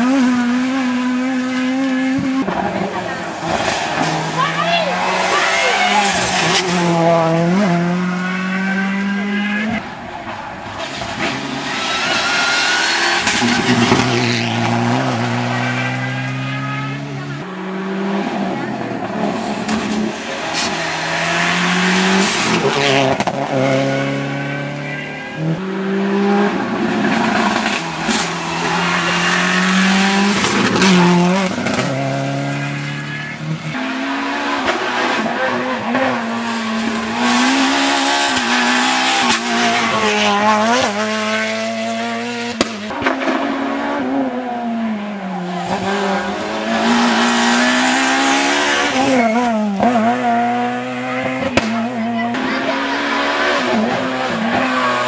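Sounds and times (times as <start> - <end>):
rally car engine revving: 0.0 - 55.0
tyre squeal: 48.6 - 49.8.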